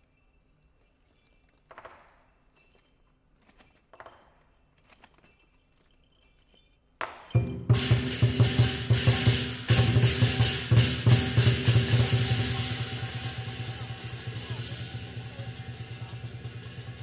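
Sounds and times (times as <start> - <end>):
cymbal strikes ringing: 7.4 - 17.0
drum and cymbals crashing: 7.4 - 17.0.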